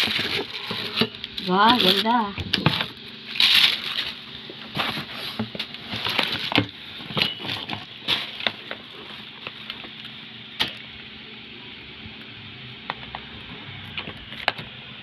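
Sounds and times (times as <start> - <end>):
plastic packaging crinkling: 0.0 - 10.2.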